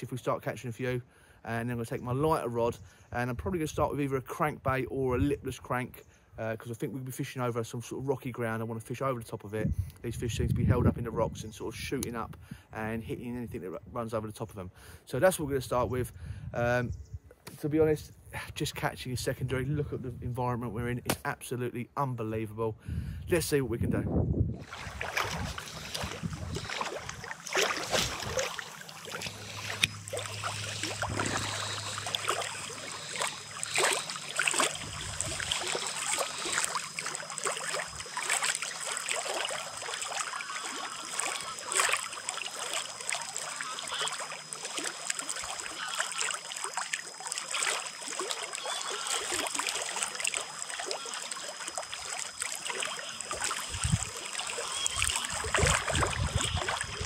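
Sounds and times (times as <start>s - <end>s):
water lapping against stone wall: 24.6s - 57.0s.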